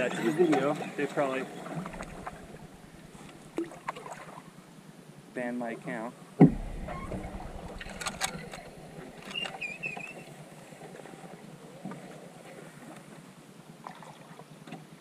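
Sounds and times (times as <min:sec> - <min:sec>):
paddle strokes in water: 0:00.2 - 0:04.5, 0:06.4 - 0:15.0
water swishing and dripping: 0:00.6 - 0:04.5, 0:06.4 - 0:13.1
sharp knocks: 0:06.4 - 0:09.6
high warbling note: 0:06.5 - 0:09.9.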